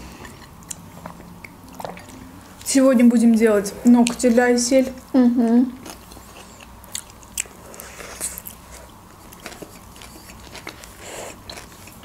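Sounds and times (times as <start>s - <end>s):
wet mouth chewing smacks: 0.3s - 2.3s.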